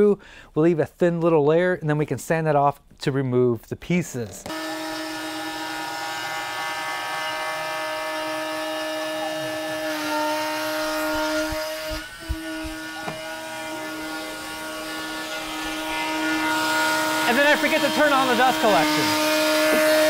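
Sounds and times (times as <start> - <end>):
router spindle whining: 4.4 - 20.0.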